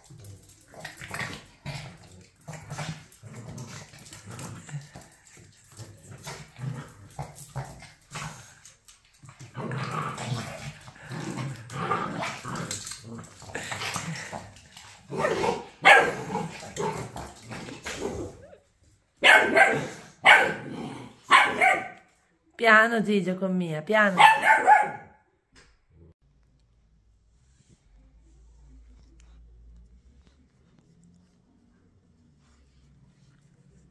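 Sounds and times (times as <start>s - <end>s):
dogs growling: 0.0s - 18.7s, 19.5s - 21.3s
dogs barking: 15.2s - 17.1s, 19.2s - 22.1s, 24.2s - 25.2s.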